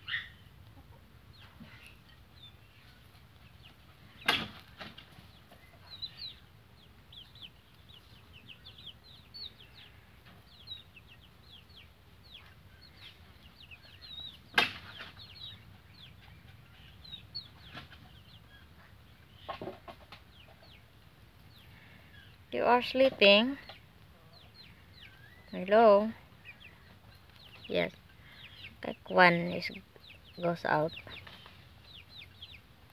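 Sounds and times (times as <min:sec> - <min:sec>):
baby chicks peeping: 0:00.0 - 0:32.9.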